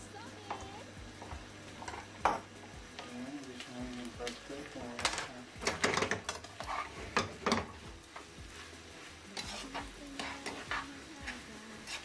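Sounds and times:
food sizzling: 0.0s - 12.0s
metal tongs scraping a frying pan: 4.9s - 7.8s, 9.3s - 12.0s.

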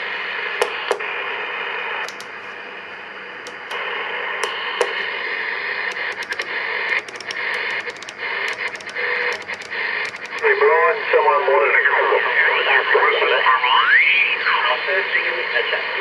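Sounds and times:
radio static hiss: 0.0s - 16.0s
sharp clicks: 0.6s - 1.0s, 2.0s - 2.6s, 3.4s - 5.1s, 5.9s - 10.6s
rotary selector clicking: 2.1s - 2.4s, 3.5s - 3.8s, 5.9s - 10.5s.

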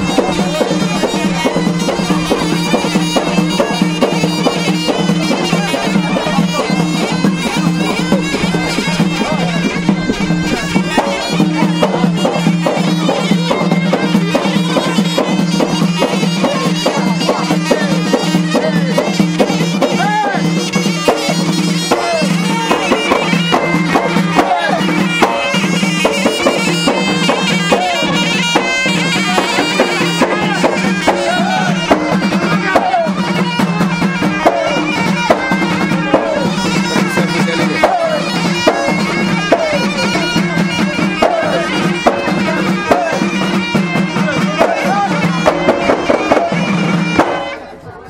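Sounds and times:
frame drums beating: 0.0s - 47.8s
shawm playing looping melody: 0.0s - 48.0s.

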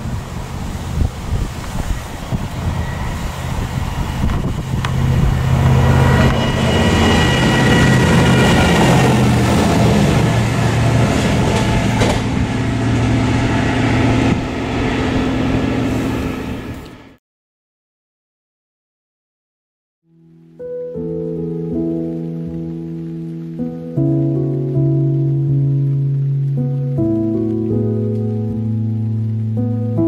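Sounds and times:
diesel engine of passing rail machine: 0.0s - 17.2s
faint high whine: 1.8s - 17.1s.

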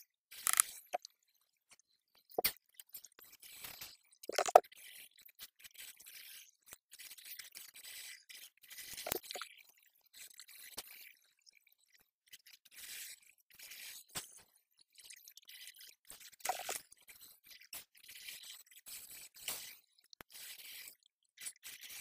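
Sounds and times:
scattered clicks: 0.4s - 1.1s, 4.3s - 4.6s, 9.1s - 9.4s, 16.5s - 16.8s.

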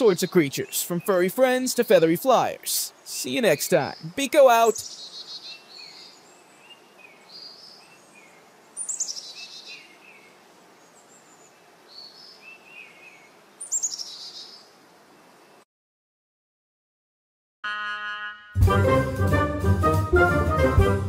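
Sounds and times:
small birds chirping: 0.0s - 15.6s
faint outdoor hiss: 0.0s - 15.7s.

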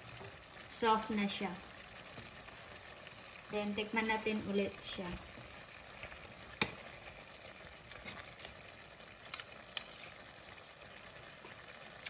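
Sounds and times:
stew simmering with faint sizzle: 0.0s - 12.0s
metal spoon clinks: 9.3s - 10.1s.

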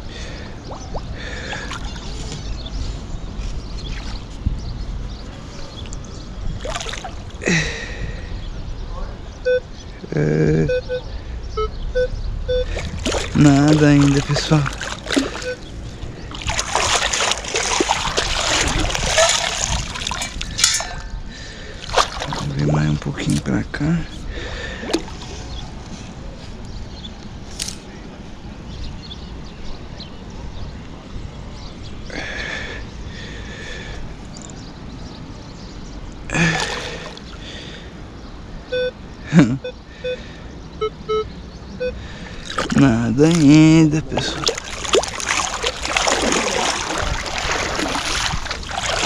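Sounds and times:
water splashing and sloshing: 0.0s - 8.2s, 12.5s - 23.6s, 24.2s - 26.2s, 35.9s - 38.0s, 42.2s - 49.0s
sand and water draining: 0.2s - 2.3s, 6.6s - 7.9s, 12.6s - 23.6s, 24.3s - 25.8s, 36.3s - 37.8s, 42.3s - 49.0s
metal detector beeps: 9.4s - 9.7s, 10.7s - 12.7s, 15.4s - 15.7s, 38.7s - 39.0s, 40.8s - 42.0s.

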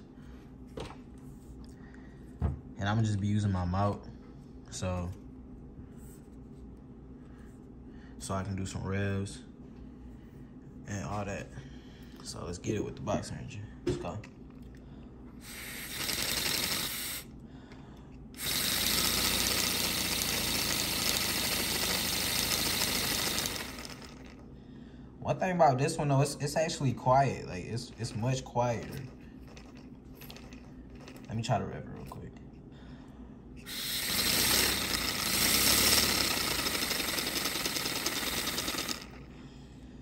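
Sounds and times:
air engine chuffing: 18.4s - 24.4s, 33.6s - 39.3s.

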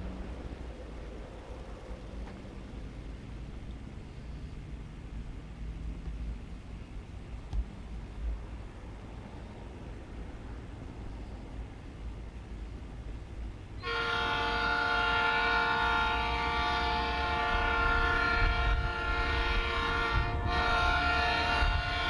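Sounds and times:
train rumbling: 0.0s - 22.0s
locomotive air horn chord: 13.8s - 22.0s.

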